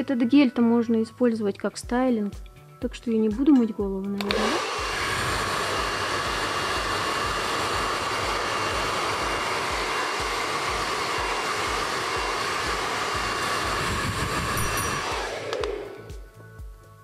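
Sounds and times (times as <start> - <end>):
hair dryer running: 4.2 - 16.4.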